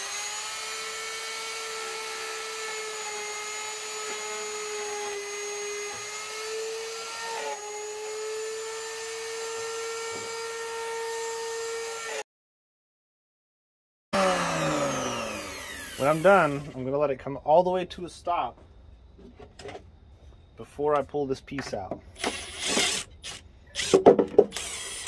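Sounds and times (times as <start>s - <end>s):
electric router whining: 0.0s - 12.2s, 14.2s - 16.8s.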